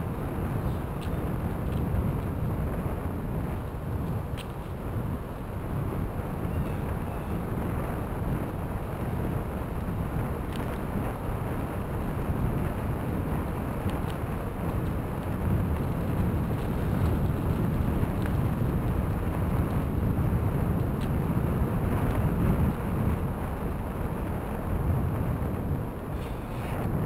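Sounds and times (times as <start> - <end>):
wind noise on microphone: 0.0 - 27.0
tyres rolling on gravel: 13.3 - 19.8.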